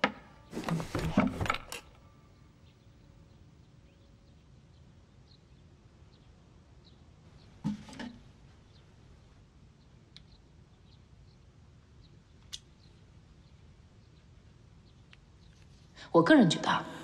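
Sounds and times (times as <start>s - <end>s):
drawer knocks and clicks: 0.5s - 2.0s.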